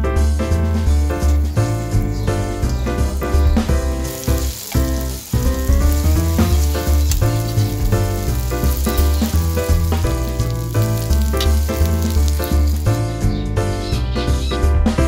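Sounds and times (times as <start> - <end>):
egg sizzling in oil: 1.7 - 13.4.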